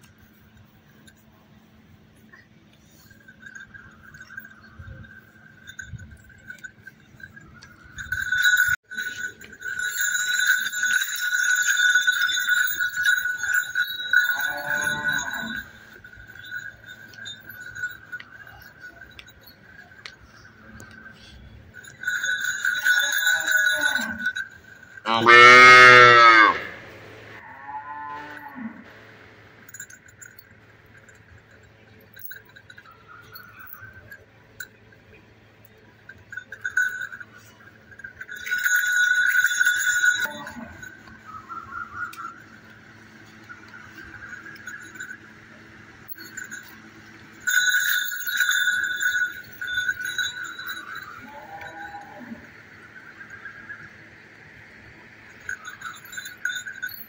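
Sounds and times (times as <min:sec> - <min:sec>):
neck bells clinking: 0:00.0 - 0:57.0
calf mooing: 0:25.1 - 0:26.8.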